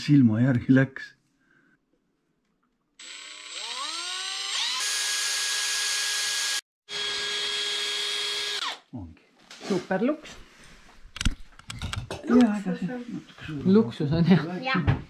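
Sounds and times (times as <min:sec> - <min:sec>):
cordless drill drilling metal: 0:03.0 - 0:08.9.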